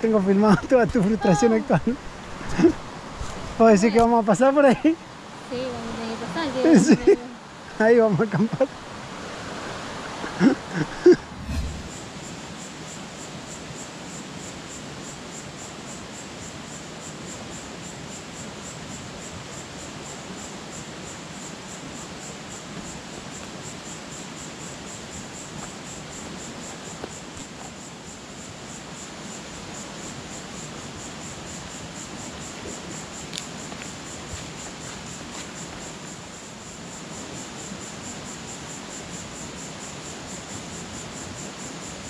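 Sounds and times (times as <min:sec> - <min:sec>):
insect chirping: 0:00.0 - 0:03.0.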